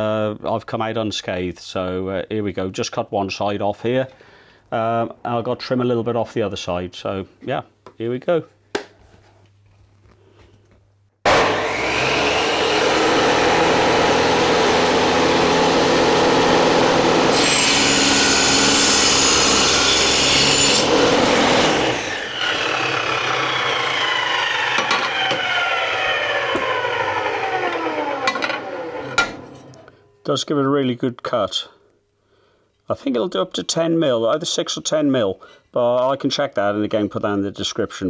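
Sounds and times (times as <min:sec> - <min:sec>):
bench saw cutting metal: 0:11.3 - 0:30.0
saw winding down: 0:11.3 - 0:30.0.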